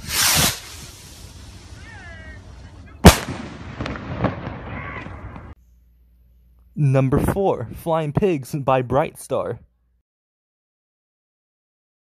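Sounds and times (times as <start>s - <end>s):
firework rocket launch hiss: 0.0s - 2.4s
firework burst bang: 3.0s - 5.5s
faint firework cracks and pops: 3.0s - 5.6s.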